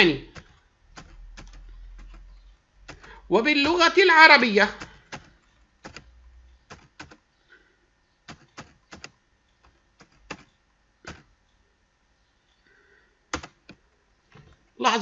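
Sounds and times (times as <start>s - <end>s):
keyboard typing: 0.0s - 7.3s, 8.2s - 11.4s, 13.3s - 14.6s.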